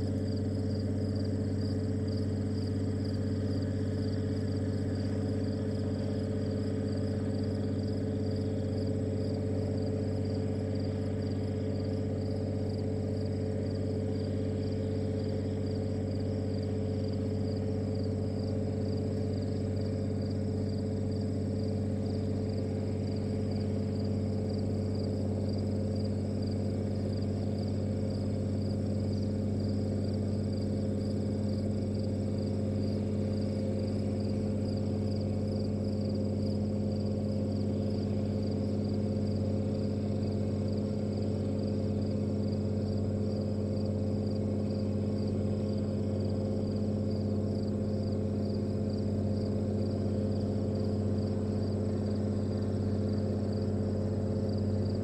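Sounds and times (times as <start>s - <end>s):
constant low hum: 0.0s - 55.0s.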